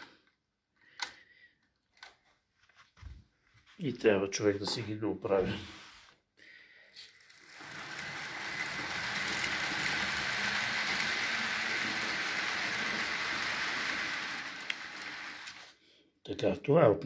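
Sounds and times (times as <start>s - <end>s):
model train wheels rattling: 7.0s - 15.8s.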